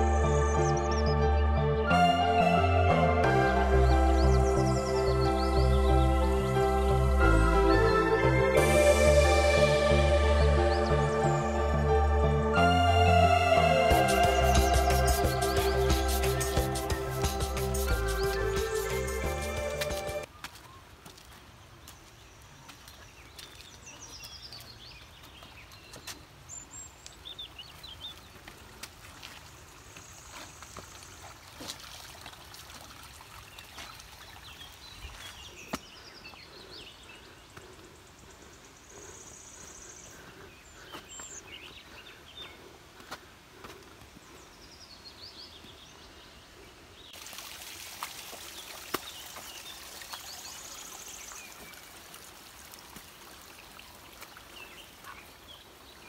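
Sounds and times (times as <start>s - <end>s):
birds chirping and trilling: 0.0s - 11.8s, 12.8s - 20.3s, 34.3s - 47.2s
footsteps on trail: 14.0s - 26.5s, 27.1s - 32.4s, 34.9s - 39.0s, 40.1s - 44.7s.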